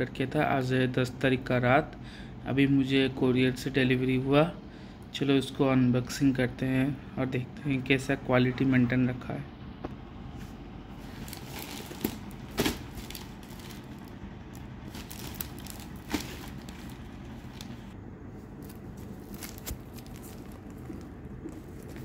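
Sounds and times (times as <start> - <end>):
plastic wrapping rustling and tearing: 11.0 - 22.0.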